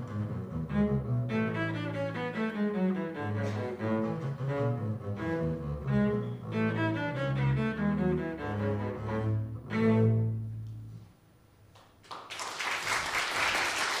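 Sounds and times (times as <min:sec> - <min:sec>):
string ensemble playing: 0:00.0 - 0:11.0
audience applause: 0:12.0 - 0:14.0.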